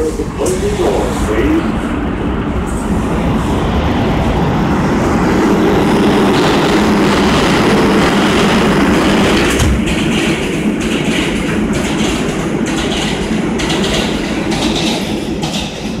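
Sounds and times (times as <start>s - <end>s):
subway train rumbling past: 0.0s - 16.0s
wheels clicking over rail joints: 9.2s - 16.0s.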